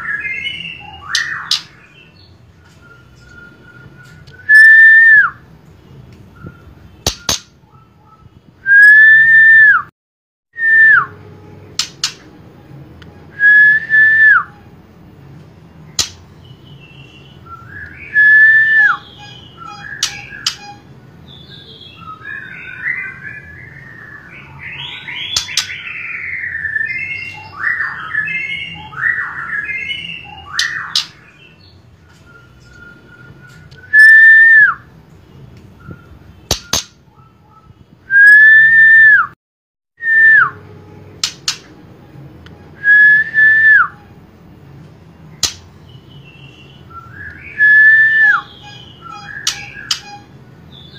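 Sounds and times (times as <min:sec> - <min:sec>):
bird whistling: 0:00.0 - 0:05.4, 0:06.4 - 0:09.8, 0:16.8 - 0:34.9, 0:35.8 - 0:39.3, 0:42.8 - 0:44.1, 0:46.1 - 0:50.9
sharp clicks: 0:45.4 - 0:45.7
bird warbling and chattering: 0:48.3 - 0:50.4.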